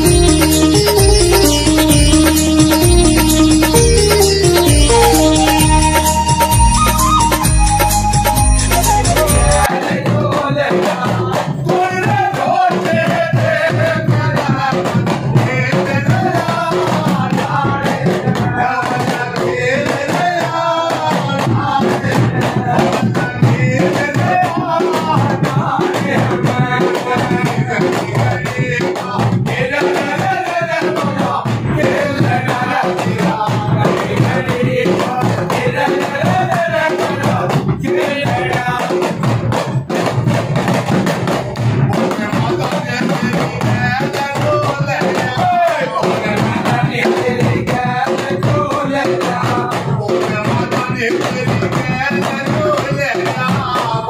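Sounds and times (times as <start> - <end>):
hand drums beaten with sticks: 0.0 - 54.0
large drum rhythm: 0.0 - 54.0
men singing together: 8.8 - 54.0.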